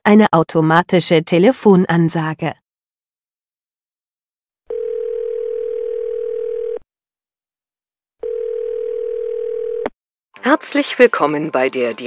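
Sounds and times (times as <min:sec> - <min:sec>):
telephone ringing tone: 0:04.7 - 0:06.8, 0:08.2 - 0:09.9.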